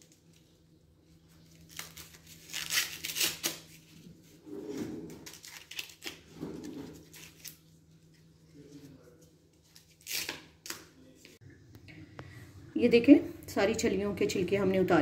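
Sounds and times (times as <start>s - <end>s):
corn husks tearing: 1.5s - 3.8s.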